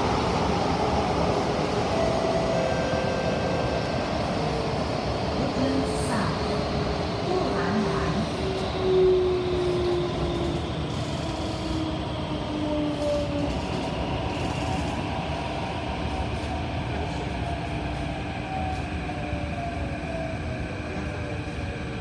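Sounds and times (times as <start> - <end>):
train wheels rumbling on rail: 0.0 - 22.0.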